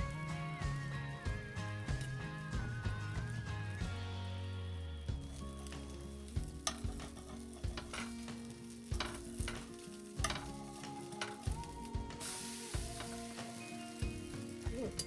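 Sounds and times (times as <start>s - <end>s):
batter sizzling: 0.0s - 15.0s
metal spatula scraping griddle: 5.2s - 11.6s.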